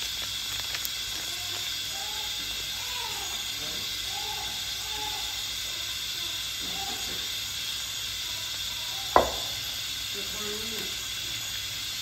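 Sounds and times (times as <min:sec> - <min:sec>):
steady hiss: 0:00.0 - 0:12.0
sharp knock: 0:09.2 - 0:09.5.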